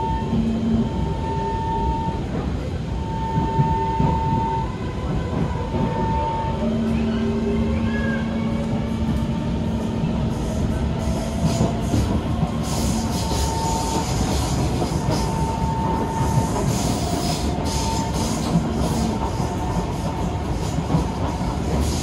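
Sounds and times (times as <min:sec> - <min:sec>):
train wheels rumbling on rail: 0:00.0 - 0:22.0
hiss and clatter: 0:11.2 - 0:22.0.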